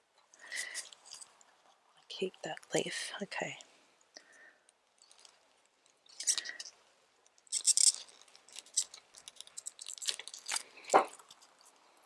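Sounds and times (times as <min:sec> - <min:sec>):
plant rustling against plastic pot: 0:04.9 - 0:12.0.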